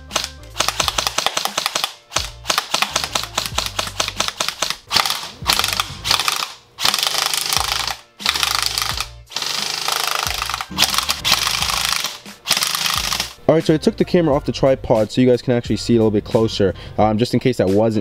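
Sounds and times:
pellets striking cans: 0.0 - 13.4
airsoft rifle automatic fire: 0.2 - 13.4.

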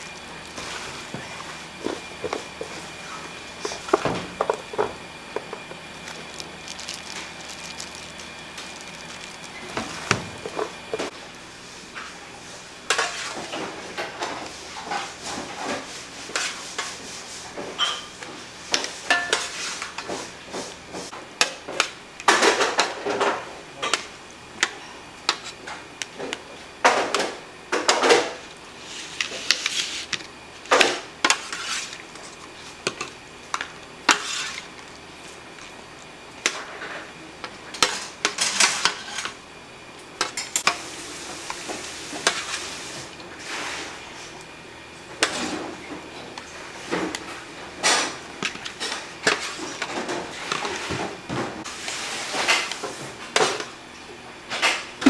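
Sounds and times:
dishes and utensils clattering: 17.7 - 18.2.

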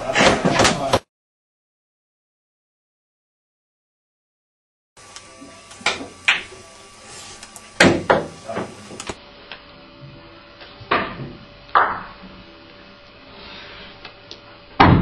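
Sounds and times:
billiard balls clacking: 11.0 - 12.2.

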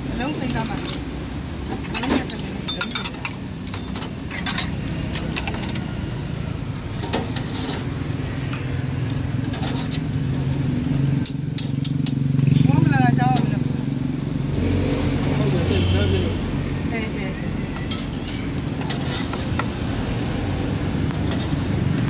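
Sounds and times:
street traffic hum: 0.0 - 22.0
utensils clinking on china bowls: 0.2 - 6.0, 17.3 - 19.6.

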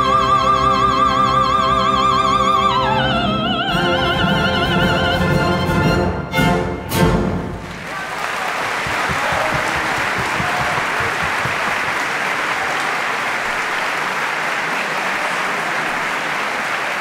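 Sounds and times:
large audience applauding: 7.4 - 17.0.

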